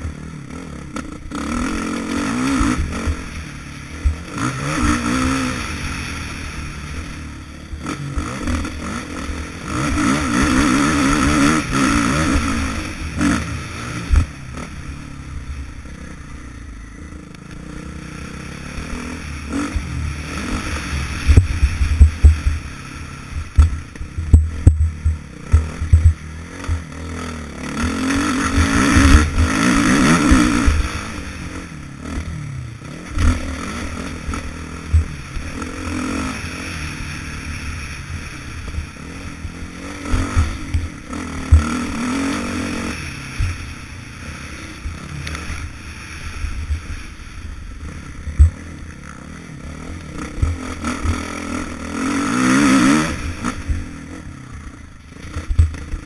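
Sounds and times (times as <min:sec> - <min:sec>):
motocross bike engine revving: 0:00.0 - 0:56.0
short low thumps: 0:23.6 - 0:26.8.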